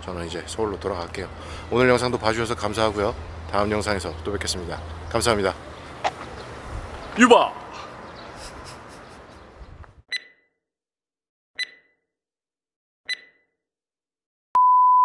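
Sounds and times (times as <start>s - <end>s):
outdoor background noise: 0.0s - 10.0s
electronic click-beeps: 11.6s - 11.9s, 13.1s - 13.4s.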